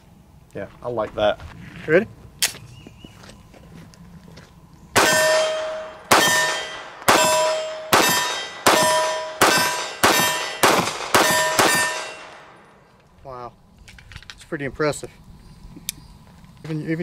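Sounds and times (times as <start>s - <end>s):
pistol shots: 5.0s - 12.7s
ringing clang of struck steel: 5.0s - 12.7s.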